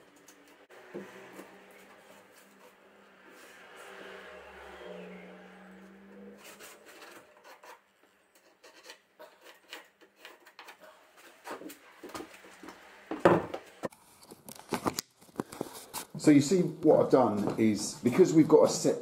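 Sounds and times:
pencil marking wood: 0:06.4 - 0:11.8
wood scraping and tapping: 0:06.4 - 0:16.1.

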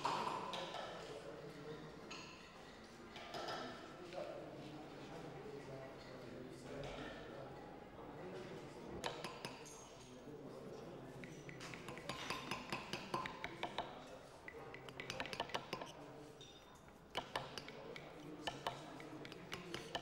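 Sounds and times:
murmur of voices: 0:00.0 - 0:20.0
hammers striking chisels on stone: 0:09.0 - 0:10.0, 0:11.2 - 0:20.0.

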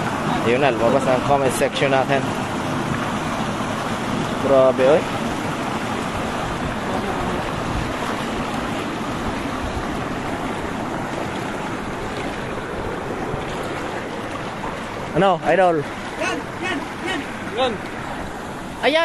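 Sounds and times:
rushing water: 0:00.0 - 0:19.0
water sloshing and splashing: 0:00.0 - 0:19.0.

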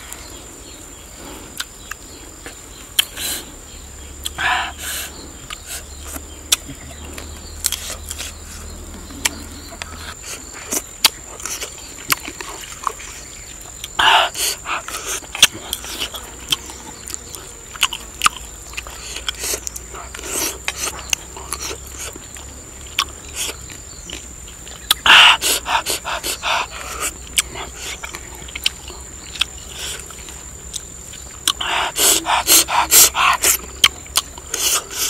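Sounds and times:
chewing and lip-smacking: 0:05.4 - 0:35.0
breathy mouth sounds: 0:18.2 - 0:30.8, 0:31.4 - 0:35.0.

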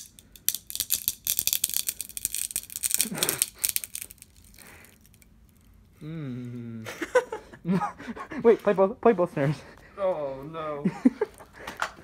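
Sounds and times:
broken drumstick crackling: 0:00.0 - 0:05.7.

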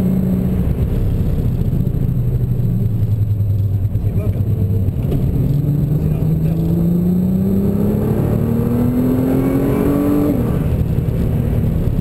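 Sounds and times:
car engine accelerating: 0:00.0 - 0:12.0.

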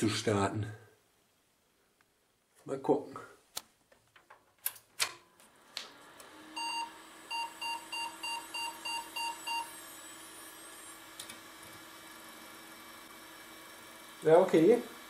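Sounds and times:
computer humming: 0:05.5 - 0:15.0
pc speaker beeps: 0:06.6 - 0:09.7.

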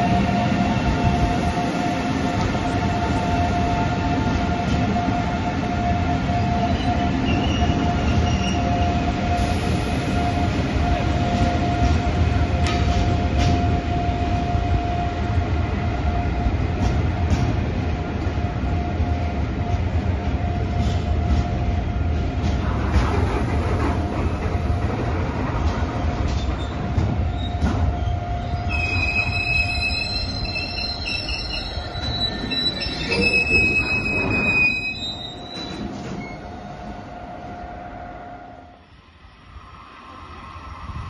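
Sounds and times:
freight train rumbling past: 0:00.0 - 0:41.0
metallic squealing from wagons: 0:26.3 - 0:36.5.

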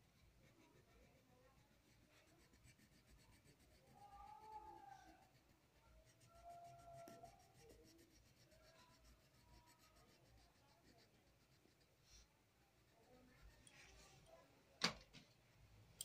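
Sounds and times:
marker scratching on paper: 0:00.2 - 0:12.2.

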